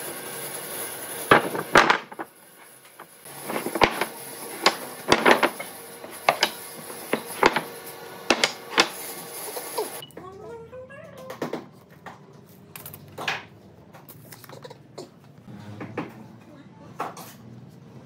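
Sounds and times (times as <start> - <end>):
wooden pieces knocking: 1.3 - 2.3, 3.0 - 9.1.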